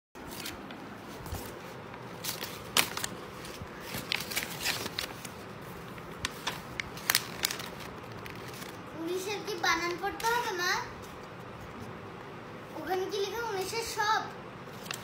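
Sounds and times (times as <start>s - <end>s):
paper crumpling and rustling: 0.3s - 8.9s, 14.7s - 15.0s.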